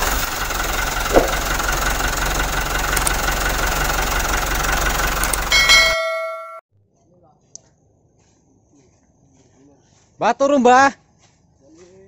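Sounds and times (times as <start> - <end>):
engine running: 0.0 - 6.5
ringing bell-like chime: 5.5 - 6.6.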